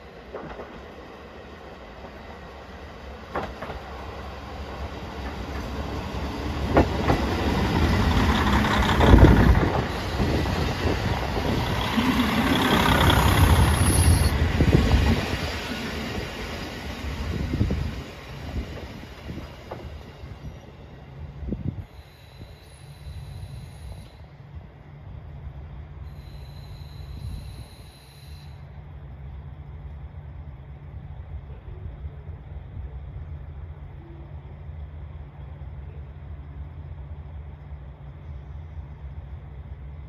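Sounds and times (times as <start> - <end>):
diesel train passing: 0.0 - 40.0
wheels clicking on rail: 3.3 - 20.1.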